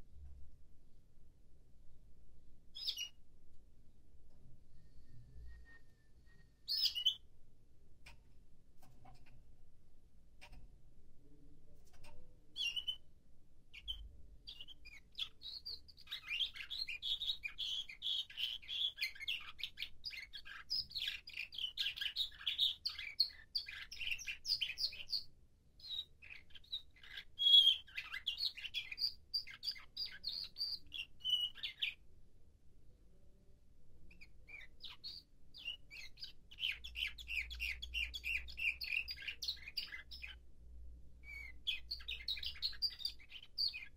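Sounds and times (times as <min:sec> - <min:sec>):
canary singing trilled phrases: 0:02.7 - 0:03.2, 0:05.6 - 0:07.3, 0:11.8 - 0:13.1, 0:13.7 - 0:32.0, 0:34.1 - 0:40.4, 0:41.2 - 0:43.9.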